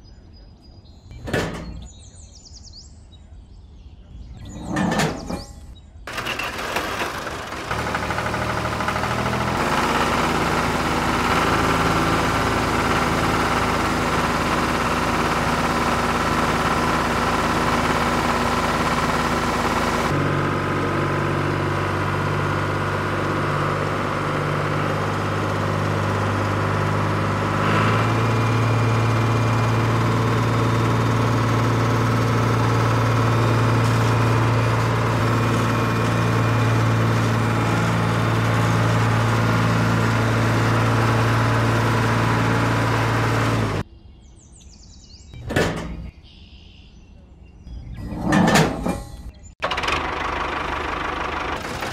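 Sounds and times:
diesel tractor engine running: 1.1 - 2.3, 4.3 - 43.9, 45.4 - 46.6, 47.7 - 51.9.

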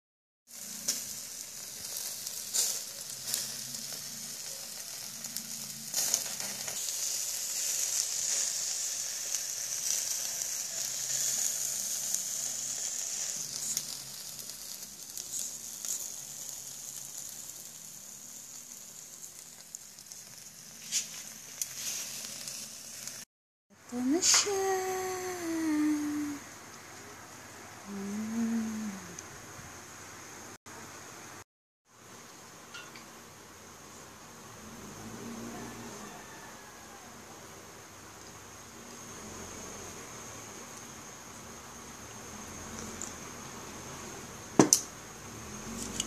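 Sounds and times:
chicken sizzling on grill: 0.5 - 23.3, 23.9 - 46.0
sharp pops and crackles: 44.6 - 45.0.

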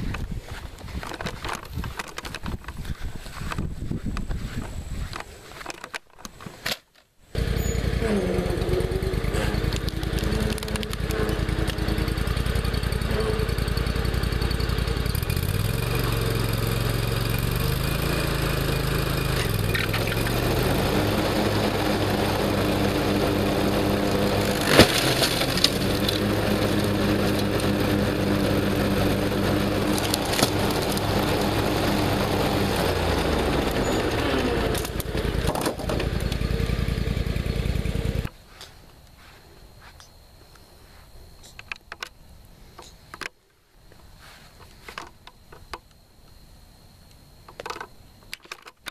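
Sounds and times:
mower blades cracking laptop: 5.6 - 13.5, 18.4 - 36.6
riding lawn mower engine: 7.3 - 39.9.

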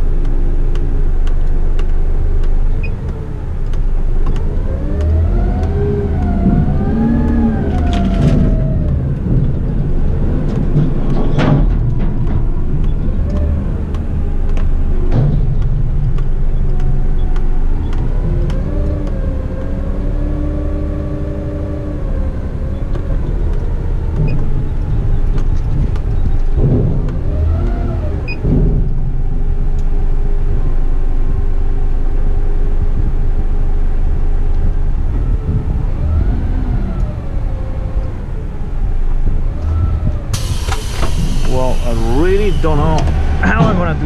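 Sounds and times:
truck engine rumble: 0.0 - 44.0
hydraulic pump whine: 39.6 - 44.0.

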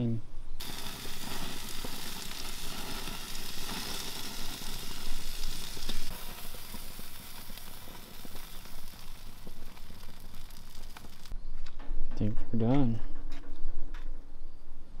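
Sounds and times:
food sizzling on grill: 0.6 - 11.4.

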